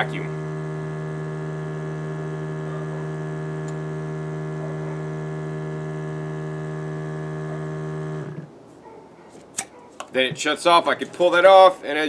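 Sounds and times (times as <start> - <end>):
vacuum pump motor hum: 0.0 - 8.5.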